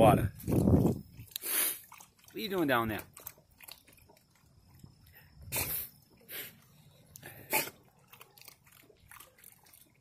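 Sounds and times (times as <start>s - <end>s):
water splashing: 0.0s - 10.0s
dog snorting and sneezing: 1.4s - 1.9s, 5.4s - 6.6s, 7.3s - 8.0s.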